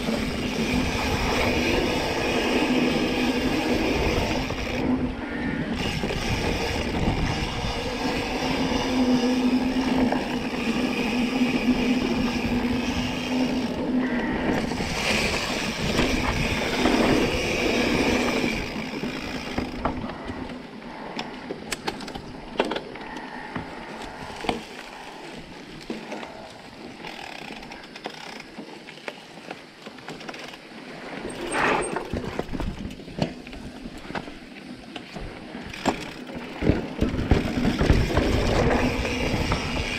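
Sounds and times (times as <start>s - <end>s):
wind on microphone: 0.0s - 20.2s, 36.6s - 39.9s
tyre noise on dirt: 0.0s - 20.5s, 28.2s - 39.9s
bike rattling clicks: 0.0s - 39.9s.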